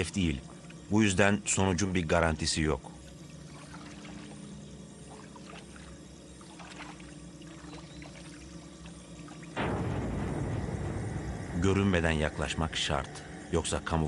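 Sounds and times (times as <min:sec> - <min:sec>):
water pouring and trickling: 0:00.0 - 0:10.6
faint low hum: 0:00.0 - 0:14.0
loud rushing noise: 0:09.6 - 0:13.6.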